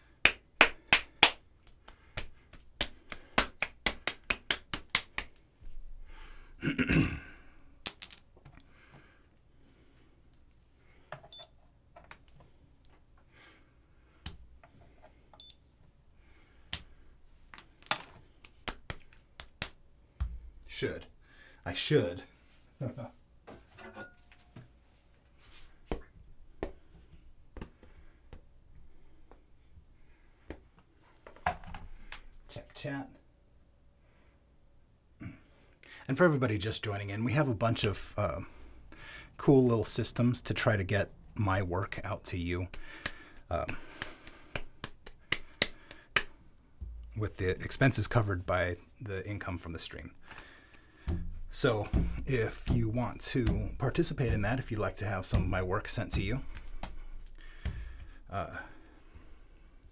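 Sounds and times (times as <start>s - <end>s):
hands slapping clay: 0.2s - 5.5s, 16.7s - 17.0s, 18.4s - 20.4s, 25.8s - 28.5s, 42.7s - 47.1s, 50.2s - 58.2s
clay lumps knocking on board: 51.0s - 57.0s.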